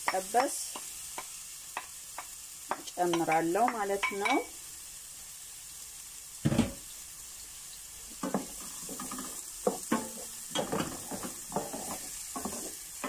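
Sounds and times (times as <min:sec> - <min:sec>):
onions sizzling in frying pan: 0:00.0 - 0:13.0
wooden spoon scraping pan: 0:08.4 - 0:13.0.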